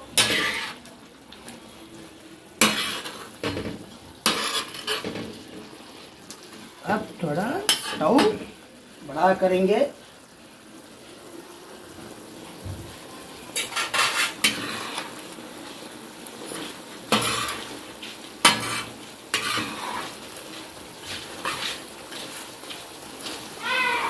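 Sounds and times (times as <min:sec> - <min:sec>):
meat sizzling in oil: 0:00.0 - 0:24.0
metal spatula scraping a pan: 0:00.1 - 0:00.9, 0:02.6 - 0:05.4, 0:07.7 - 0:08.4, 0:13.6 - 0:15.1, 0:16.5 - 0:17.8, 0:18.4 - 0:20.2, 0:21.0 - 0:22.4.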